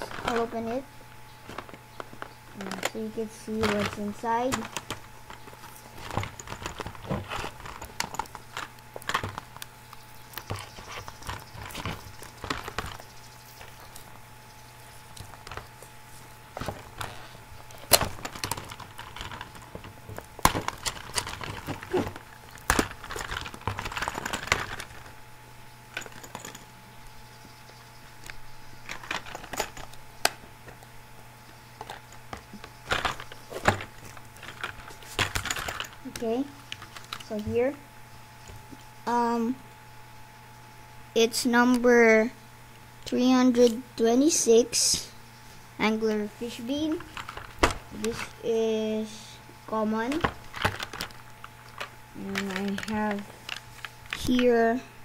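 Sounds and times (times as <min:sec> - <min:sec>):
plastic blister pack crackling: 0:00.0 - 0:14.3, 0:15.0 - 0:25.3, 0:46.8 - 0:48.4, 0:50.0 - 0:54.4.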